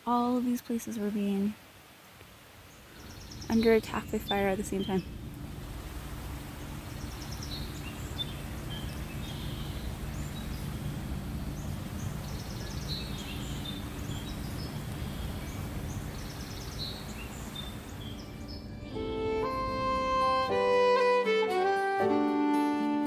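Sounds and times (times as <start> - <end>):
small birds chirping: 2.6 - 5.6, 6.3 - 19.6
low background rumble: 2.9 - 20.5.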